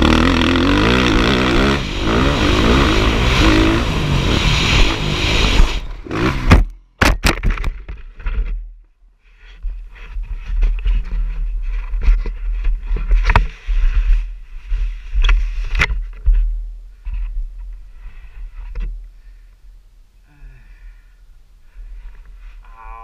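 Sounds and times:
gravel scraping: 0.0 - 6.7
heavy low rumble: 0.0 - 6.8.

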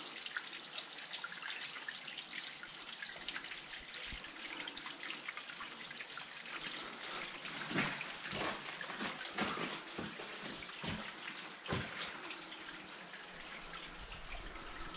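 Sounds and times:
water dripping and trickling: 0.0 - 14.9
soft knocks and thumps: 7.7 - 12.1.

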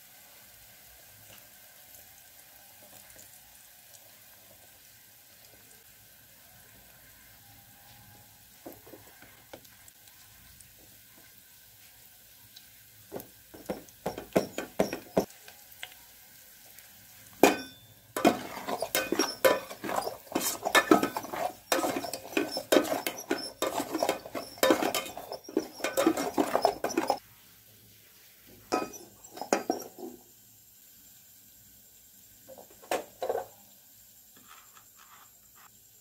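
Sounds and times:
wooden spatula scraping a pot: 13.6 - 15.3, 17.4 - 27.2, 28.7 - 30.2, 34.4 - 35.7.

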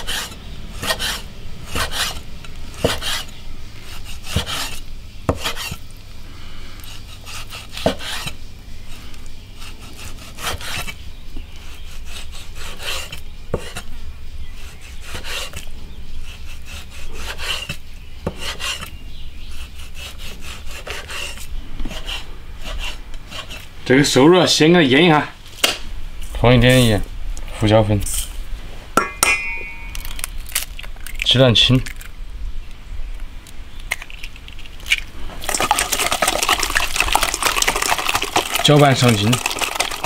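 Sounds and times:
blade rasping through meat: 0.0 - 5.8, 6.8 - 9.0, 9.6 - 13.9, 14.5 - 23.7.

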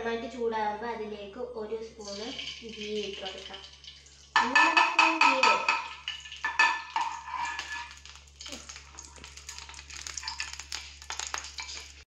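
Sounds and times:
faint sizzle: 0.0 - 12.0
metal ladle scraping pan: 4.3 - 8.2, 8.9 - 10.7.

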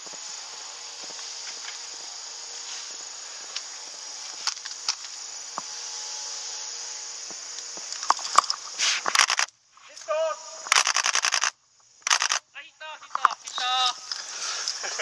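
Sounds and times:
high-pitched insect drone: 0.0 - 15.0
sharp clicks: 7.5 - 9.6, 10.6 - 12.5, 13.1 - 14.8
rustling through bamboo brush: 8.2 - 11.5.

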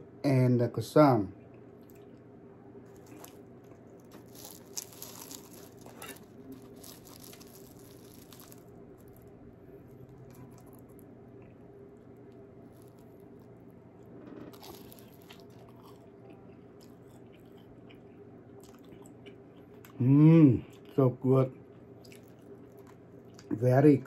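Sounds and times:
pastry crust crackling and tearing: 2.8 - 18.0.

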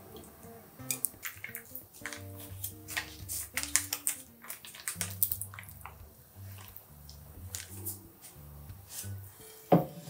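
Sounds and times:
sauce squeezed wet splats: 0.8 - 6.8.

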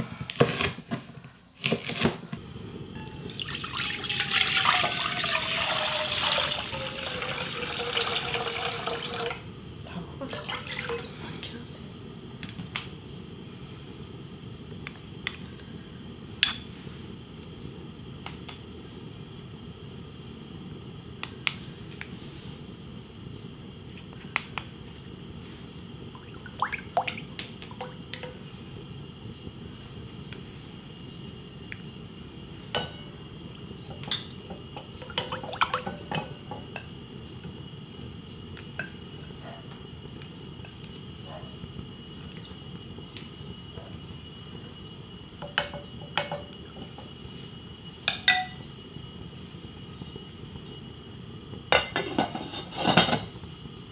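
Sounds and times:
faint steady hiss: 0.0 - 53.9
small splashes: 26.2 - 27.3
spoon and bowl tapping pot: 48.1 - 48.6.

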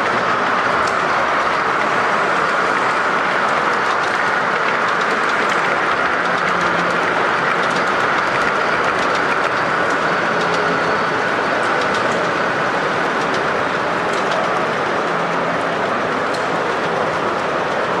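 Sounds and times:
model train running on track: 0.0 - 18.0
wheels clicking: 0.0 - 18.0.

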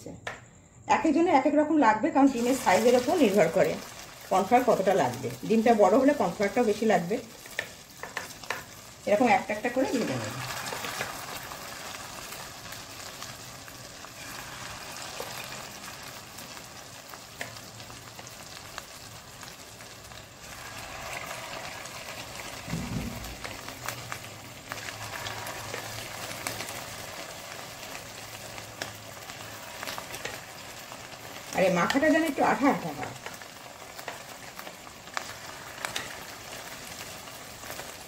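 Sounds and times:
chicken deep-frying in oil: 2.3 - 38.0
low thump: 22.6 - 23.4.

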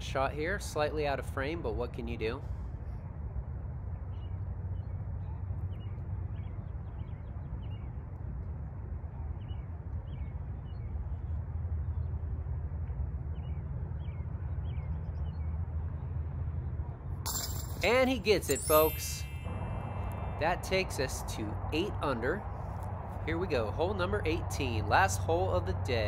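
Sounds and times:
steady low rumble: 11.0 - 26.0.

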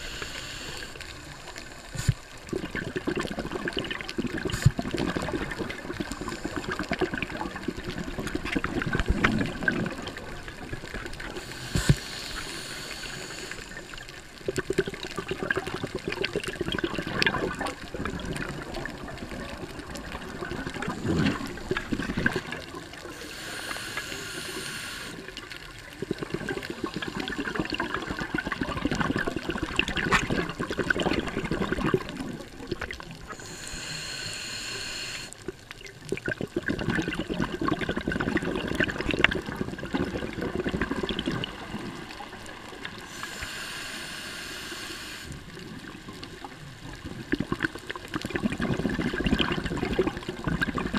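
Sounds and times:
regulator hissing inhale: 0.0 - 2.4, 6.0 - 6.8, 11.2 - 14.0, 23.1 - 25.3, 33.2 - 35.4, 43.0 - 45.5
bubbling exhale underwater: 0.0 - 50.9.

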